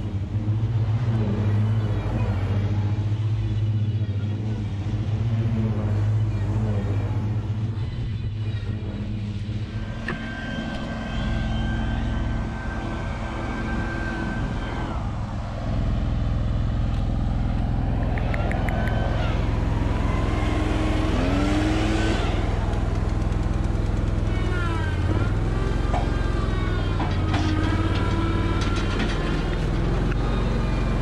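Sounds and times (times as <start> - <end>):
mower engine humming: 0.0 - 31.0
truck idling: 0.0 - 31.0
high whine: 6.8 - 25.5.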